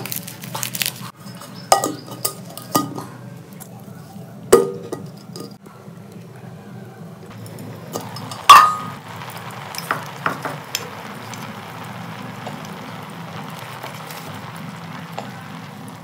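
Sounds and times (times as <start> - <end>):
pot sizzling: 0.0 - 5.6, 7.3 - 16.0
metal lid clanking: 1.2 - 3.2, 4.5 - 5.6, 7.9 - 9.0.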